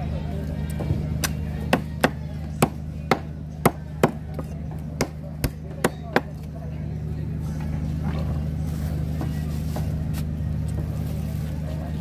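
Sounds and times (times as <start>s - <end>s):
cleaver chopping fish on wood: 1.2s - 6.4s.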